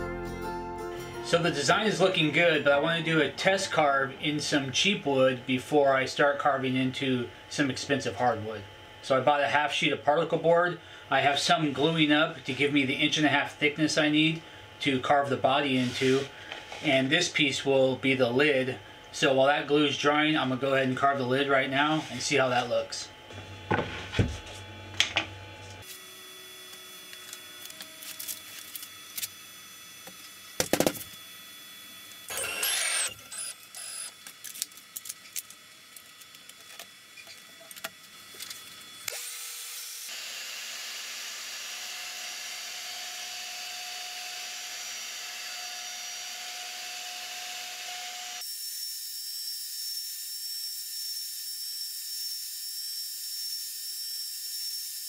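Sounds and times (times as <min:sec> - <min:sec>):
high steady whine: 0:00.0 - 0:39.2
dust collection vacuum: 0:00.9 - 0:48.5
cnc router carving: 0:01.3 - 0:34.2, 0:35.5 - 0:55.0.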